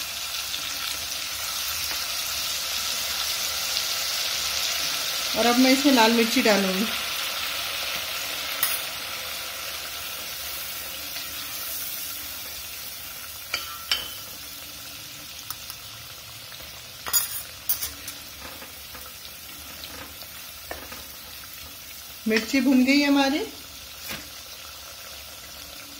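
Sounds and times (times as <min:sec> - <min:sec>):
spices sizzling in hot oil: 0:00.0 - 0:25.9
spoon tapping pot: 0:13.5 - 0:14.3.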